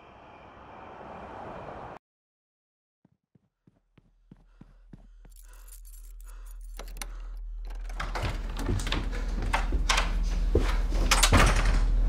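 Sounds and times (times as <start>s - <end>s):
low hum: 4.4s - 12.0s
keys jangling: 5.2s - 8.2s
door lock and handle rattling: 5.5s - 10.2s, 11.0s - 12.0s.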